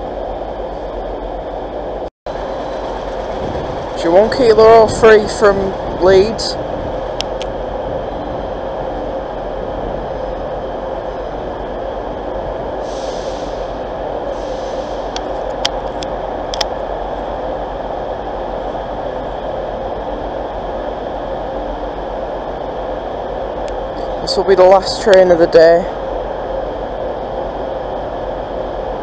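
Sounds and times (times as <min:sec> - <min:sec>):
train engine hum and rumble: 0:00.0 - 0:29.0
air hiss: 0:12.8 - 0:15.2.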